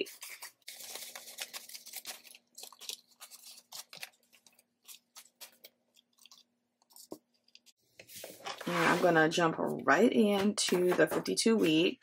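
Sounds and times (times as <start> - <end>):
paper banknotes rustling: 0.0 - 9.2.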